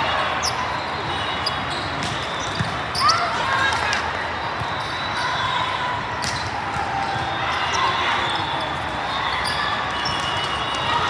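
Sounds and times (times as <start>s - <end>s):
murmur of distant voices: 0.0s - 11.0s
volleyballs bouncing and struck: 1.6s - 3.1s, 6.2s - 7.4s.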